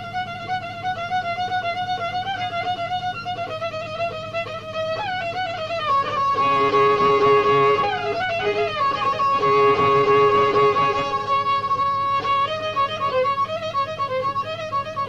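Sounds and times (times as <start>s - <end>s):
violin melody: 0.0s - 15.0s
lower held notes: 3.4s - 15.0s.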